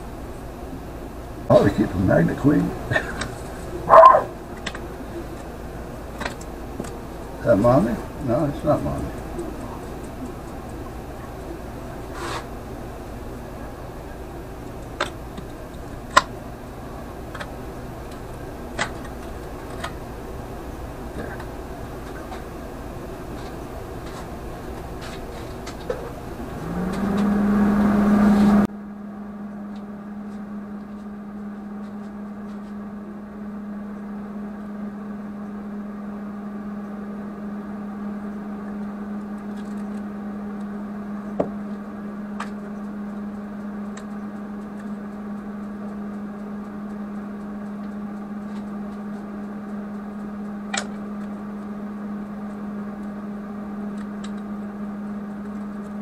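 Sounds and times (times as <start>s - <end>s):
electric motor humming: 0.0s - 28.7s.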